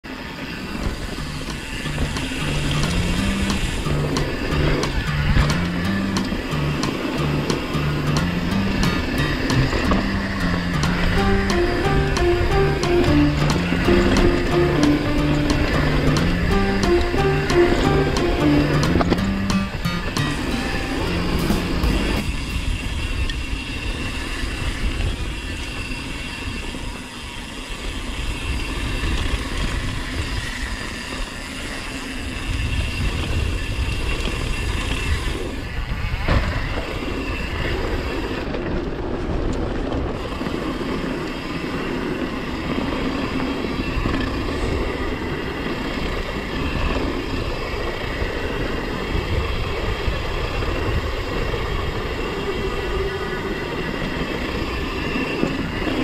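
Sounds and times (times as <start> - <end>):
sharp knock: 20.2 - 23.0.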